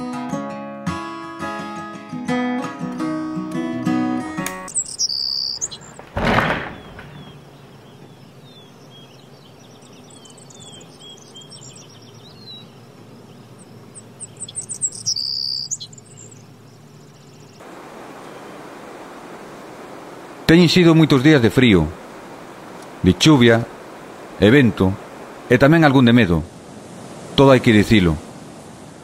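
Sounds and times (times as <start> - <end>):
guitar music from radio: 0.0 - 4.7
bird singing bright phrase: 4.6 - 6.0, 6.7 - 17.6
small birds chirping: 4.6 - 26.5.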